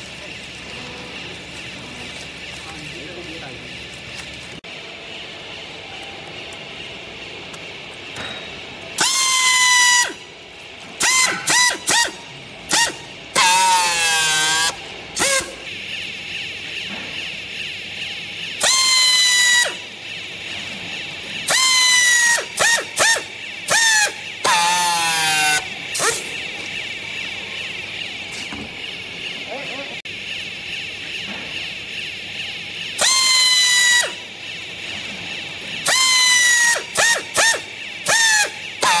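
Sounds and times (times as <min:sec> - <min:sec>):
pneumatic air motor whining: 0:05.7 - 0:39.0
strapping tool motor whining: 0:32.9 - 0:39.0.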